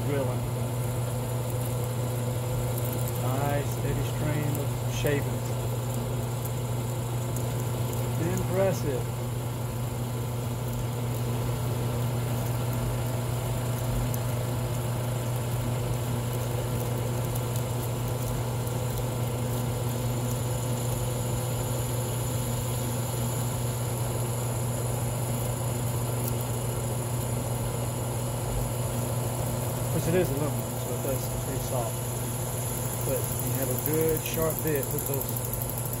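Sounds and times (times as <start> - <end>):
drill press humming: 27.6 - 36.0
drill bit cutting metal: 32.8 - 35.4.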